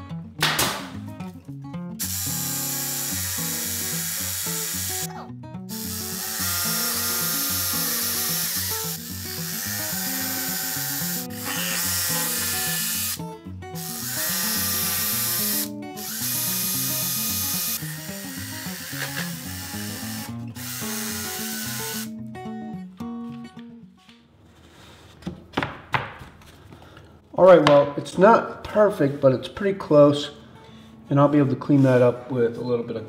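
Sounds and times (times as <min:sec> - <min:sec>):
background music: 0:00.0 - 0:23.7
jigsaw cutting wood: 0:02.0 - 0:05.1, 0:05.7 - 0:13.2, 0:13.8 - 0:22.1.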